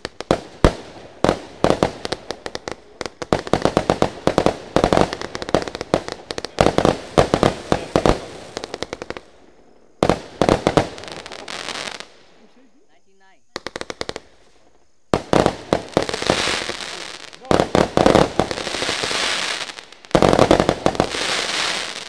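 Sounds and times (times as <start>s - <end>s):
fireworks bangs: 0.0s - 22.0s.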